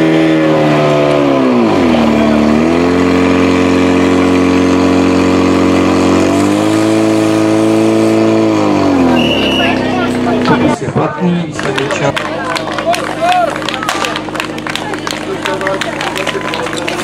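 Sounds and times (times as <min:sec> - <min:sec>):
fire pump engine running: 0:00.0 - 0:17.0.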